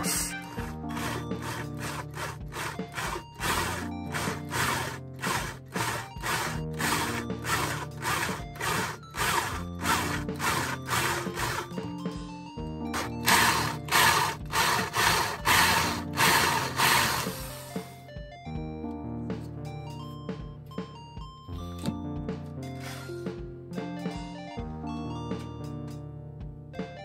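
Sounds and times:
background music: 0.0s - 27.0s
power drill grinding into screw: 0.5s - 11.8s, 12.9s - 17.9s.

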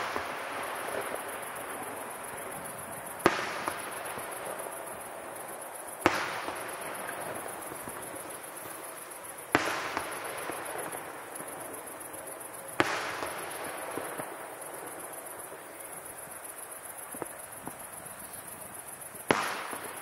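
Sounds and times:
fireworks shells bursting: 0.0s - 15.2s.

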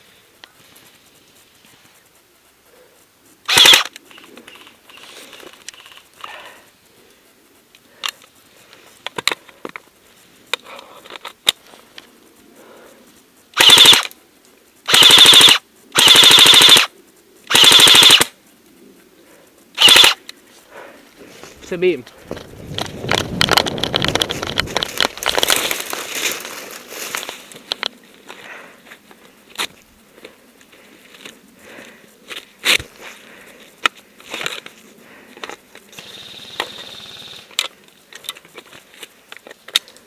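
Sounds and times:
faint clicks and rustling: 0.0s - 13.5s, 18.3s - 40.0s
airsoft gun firing bursts: 3.5s - 3.9s, 13.6s - 14.1s, 14.9s - 16.9s, 17.5s - 18.4s, 19.8s - 20.2s, 35.9s - 37.6s.

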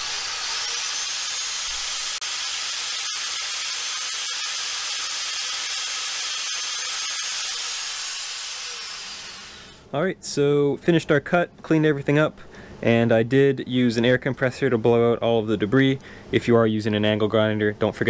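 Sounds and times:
angle grinder cutting hose: 0.0s - 9.8s.

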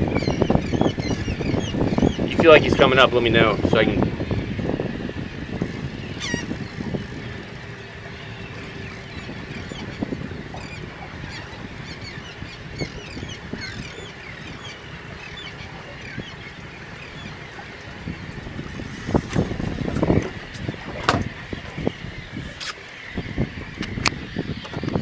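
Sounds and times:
seabirds chirping: 0.0s - 25.0s
wind and water noise: 0.0s - 25.0s
knocks and rumbling bumps: 18.4s - 22.0s.

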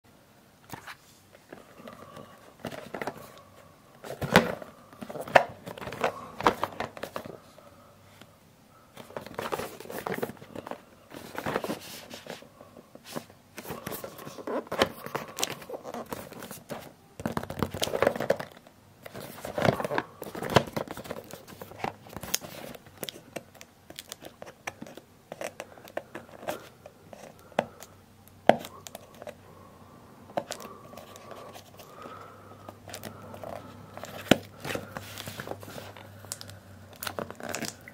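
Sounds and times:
cardboard crinkling and tearing: 13.1s - 27.4s, 32.9s - 37.8s.

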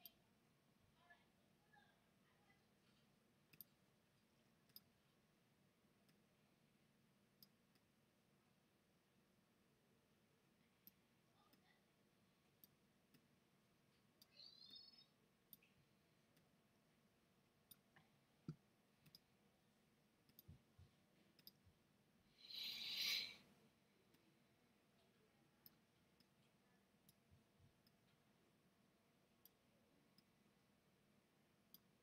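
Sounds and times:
computer mouse clicks: 3.5s - 3.8s, 4.5s - 4.9s, 7.4s - 7.9s, 17.6s - 19.3s, 20.2s - 20.7s, 21.3s - 21.6s, 25.0s - 28.2s, 29.4s - 30.4s, 31.6s - 32.0s
short hiss: 22.4s - 23.4s.

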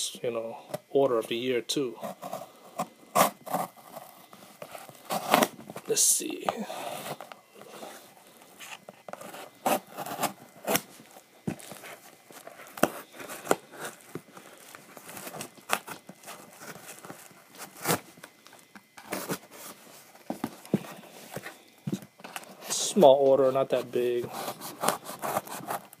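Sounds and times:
cardboard box tearing: 3.1s - 5.8s, 8.6s - 14.2s, 14.9s - 18.1s, 24.2s - 26.0s.

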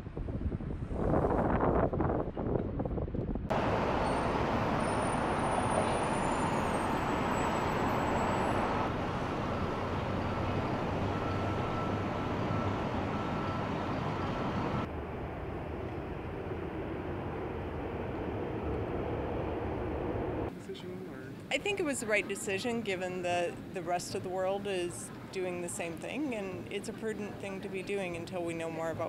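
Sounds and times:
cars passing: 3.5s - 20.8s.

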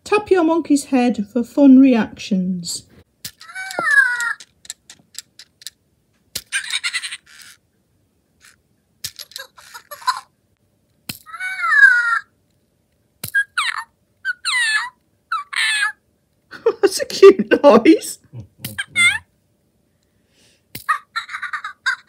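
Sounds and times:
toy electronic squeaks and chirps: 6.4s - 7.6s, 13.2s - 16.0s.

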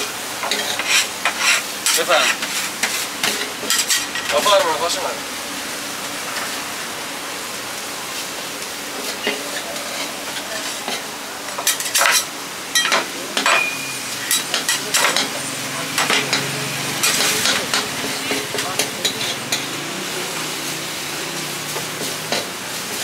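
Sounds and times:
meat sizzling in a pan: 0.0s - 23.0s
utensil scraping a pan: 0.4s - 4.4s.

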